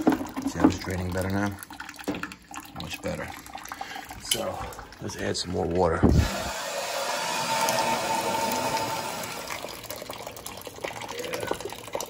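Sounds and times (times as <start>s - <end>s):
water pouring into plastic bucket: 0.0s - 12.0s
water rushing into boiler hissing: 6.1s - 9.9s.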